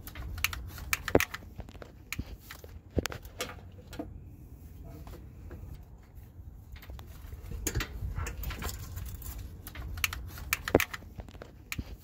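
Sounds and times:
metallic clicks and knocks: 0.0 - 4.2, 6.7 - 12.0.

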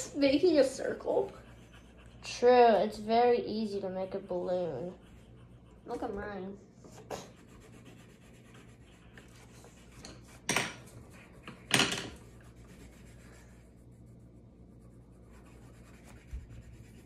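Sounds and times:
colored pencils scratching on paper: 0.0 - 17.0.

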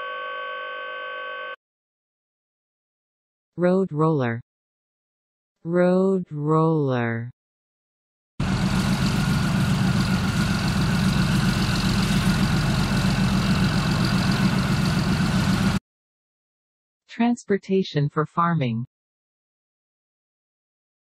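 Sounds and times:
diesel engine running: 8.4 - 15.8.

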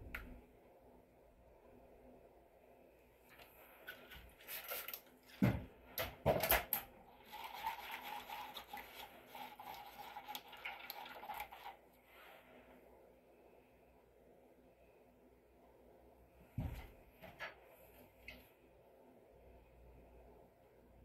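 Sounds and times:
spoon scraping in plastic cup: 7.2 - 11.8.

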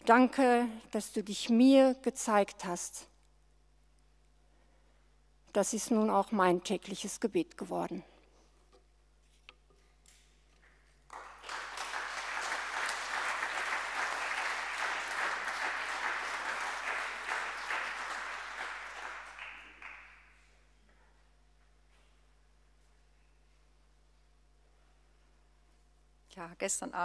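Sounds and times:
congregation applauding: 10.8 - 20.4.

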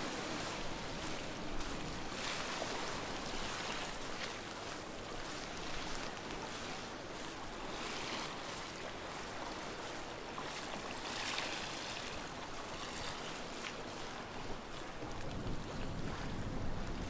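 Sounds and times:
small waves washing onto shore: 0.0 - 17.0.

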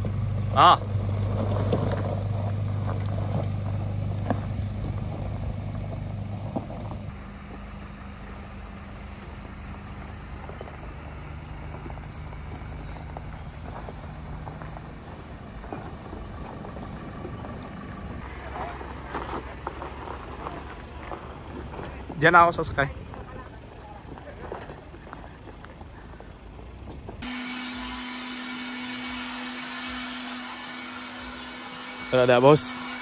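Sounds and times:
vehicle engine running: 0.0 - 33.0.

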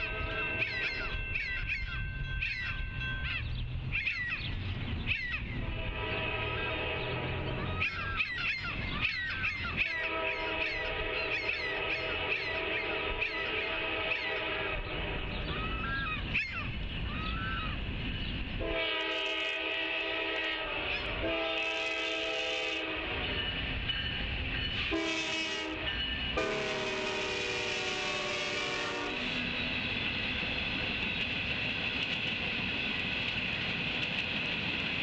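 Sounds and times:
locomotive air horn blasts: 0.0 - 0.6, 5.6 - 7.7, 9.9 - 15.3, 18.6 - 23.4, 24.8 - 29.4.

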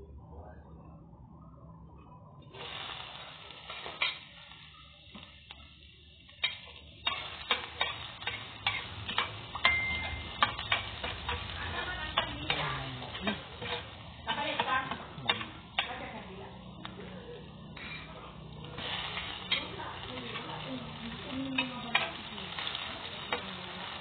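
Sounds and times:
garlic sizzling in oil: 2.4 - 24.0
spatula scraping a pan: 6.4 - 16.0, 18.8 - 23.5.

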